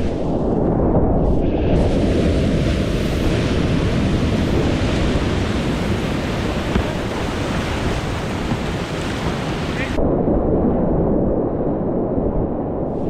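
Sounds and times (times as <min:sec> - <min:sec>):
rushing whitewater: 0:01.8 - 0:10.0.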